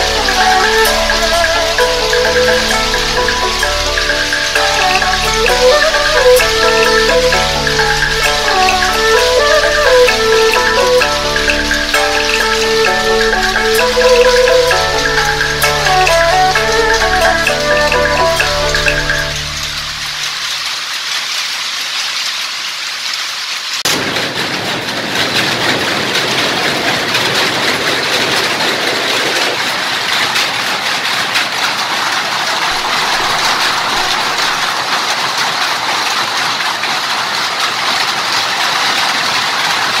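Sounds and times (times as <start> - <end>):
powerlooms clattering: 0.0 - 20.5.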